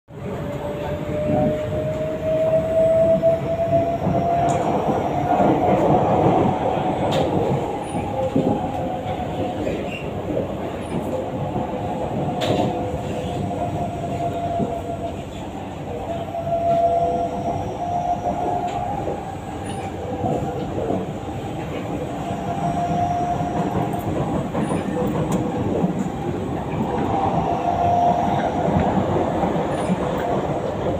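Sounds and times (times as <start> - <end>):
train wheels rumbling on track: 0.1 - 30.9
wavering train whine: 0.2 - 30.9.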